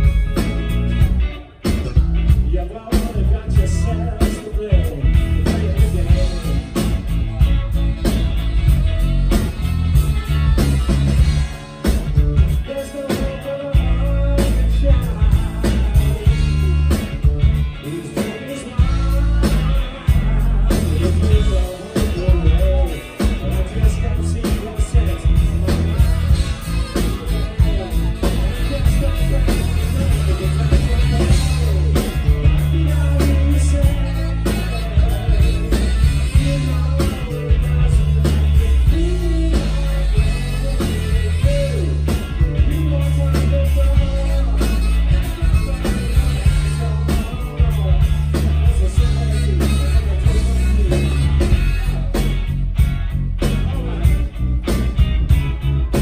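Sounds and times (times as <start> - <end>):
person singing: 0.0 - 54.8
bass guitar: 0.0 - 56.0
drums: 0.0 - 56.0
electric guitars: 0.0 - 56.0.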